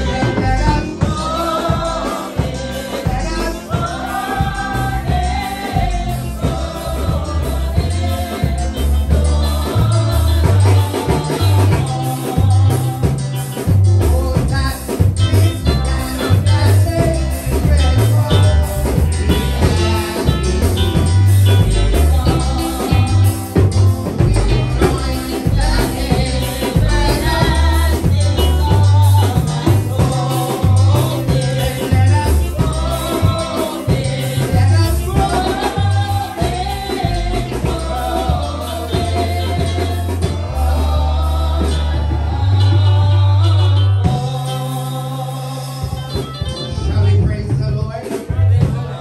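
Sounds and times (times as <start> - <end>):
man singing into microphone: 0.0 - 3.9, 9.8 - 20.4, 21.8 - 40.4
church music with bass and drums: 0.0 - 49.0
instrumental accompaniment: 0.0 - 49.0.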